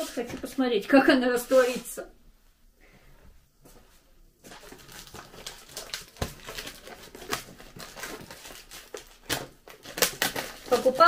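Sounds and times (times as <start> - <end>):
plastic wrap crinkling: 4.4 - 11.0.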